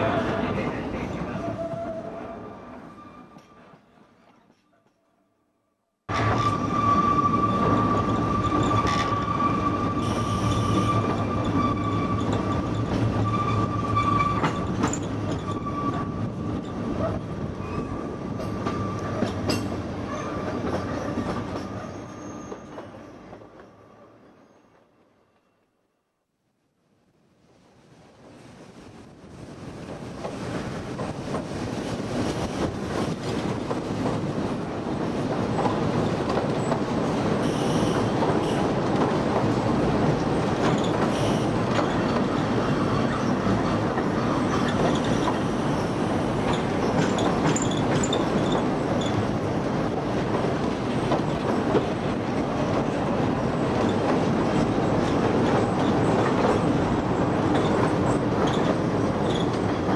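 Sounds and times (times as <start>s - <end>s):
train running on rails: 0.0s - 5.0s, 6.1s - 25.7s, 27.4s - 59.9s
wheel squeals: 46.5s - 49.2s, 57.5s - 59.7s.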